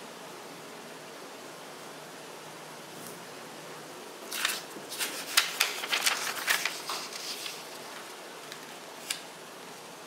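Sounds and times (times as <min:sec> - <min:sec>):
faint steady hiss: 0:00.0 - 0:10.0
paper scraping on a tabletop: 0:04.3 - 0:09.2.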